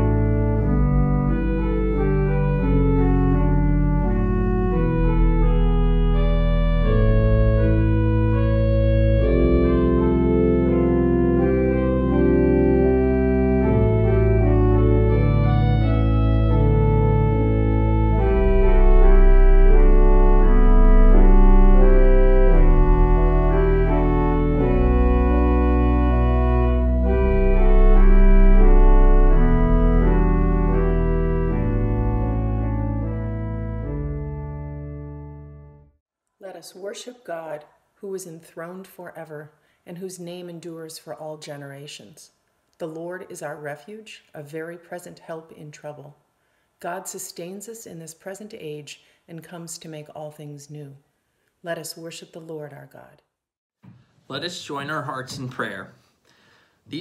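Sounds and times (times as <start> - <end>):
organ chords: 0.0 - 36.0.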